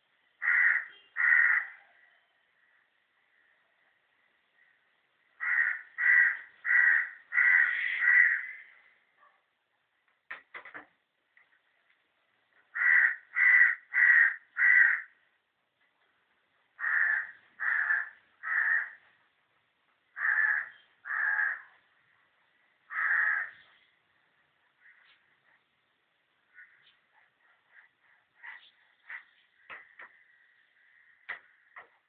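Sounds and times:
crow cawing: 0:00.4 - 0:01.9, 0:05.4 - 0:08.9, 0:12.7 - 0:15.2, 0:16.8 - 0:19.1, 0:20.1 - 0:21.8, 0:22.9 - 0:23.6, 0:24.8 - 0:25.2, 0:26.5 - 0:27.0, 0:28.4 - 0:31.9.

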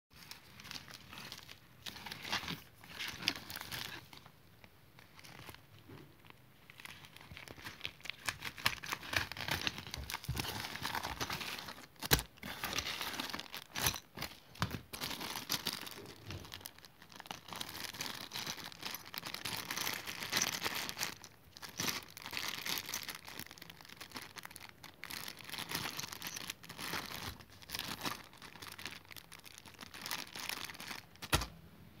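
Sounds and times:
plastic bags crinkling: 0:00.2 - 0:04.3, 0:05.0 - 0:31.5.

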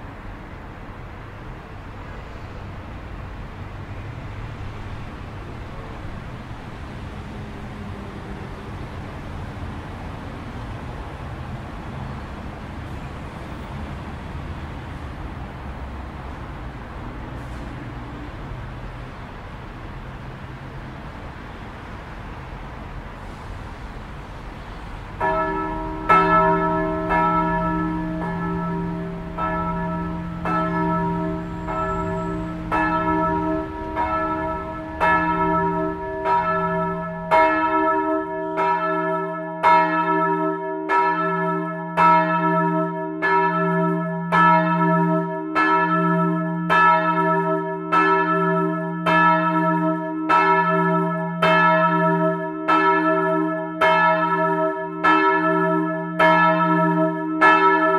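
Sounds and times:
church bell ringing: 0:25.2 - 0:57.9.

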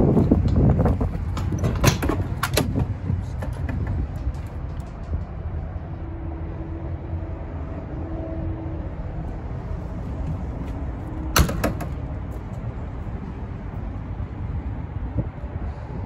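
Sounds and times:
steady low rumble: 0:00.0 - 0:16.0
truck cab door clicks and clunks: 0:00.4 - 0:04.9, 0:11.3 - 0:12.1.

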